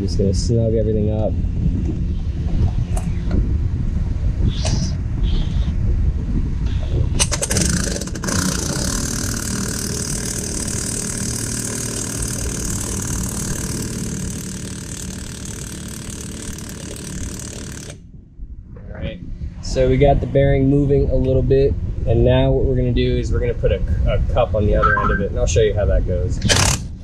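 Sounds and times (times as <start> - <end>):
impact wrench hammering: 7.5 - 18.0.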